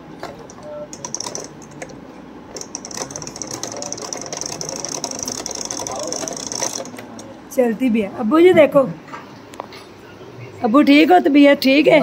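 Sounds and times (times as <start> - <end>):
sewing machine running: 0.9 - 1.6, 2.6 - 7.0.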